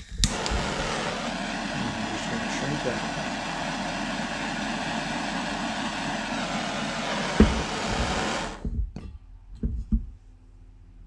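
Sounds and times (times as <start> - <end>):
gas torch hissing: 0.0 - 8.7.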